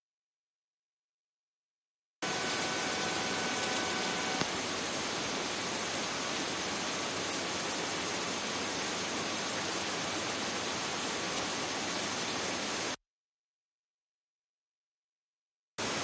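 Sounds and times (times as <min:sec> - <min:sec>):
faint high whine: 0:02.2 - 0:10.2
steady radio hiss: 0:02.2 - 0:13.0.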